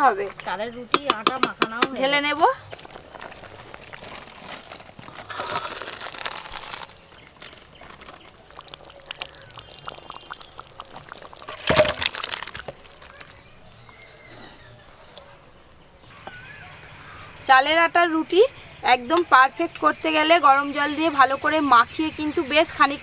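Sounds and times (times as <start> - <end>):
thick liquid pouring into bowl: 7.7 - 13.5.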